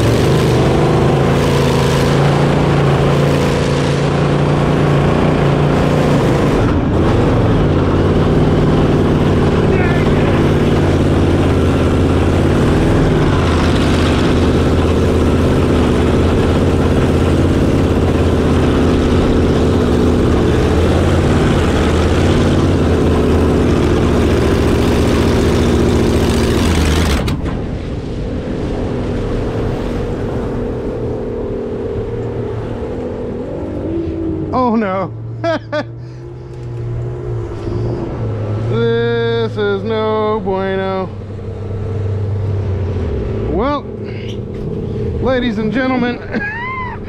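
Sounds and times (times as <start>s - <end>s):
boat engine running hard: 0.0s - 47.0s
low engine drone: 0.0s - 47.0s
water and wind rushing: 0.0s - 47.0s.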